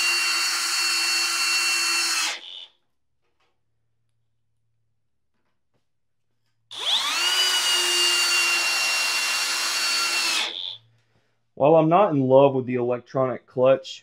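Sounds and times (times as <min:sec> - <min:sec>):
cordless drill motor whining: 0:00.0 - 0:02.8, 0:06.7 - 0:10.9.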